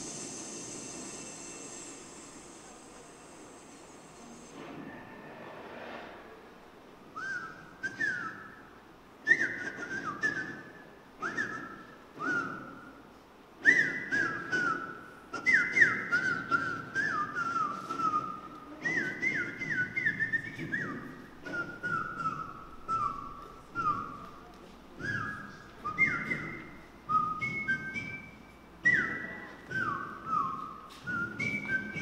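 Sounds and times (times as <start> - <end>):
high whistled notes sliding down: 0.0 - 6.1.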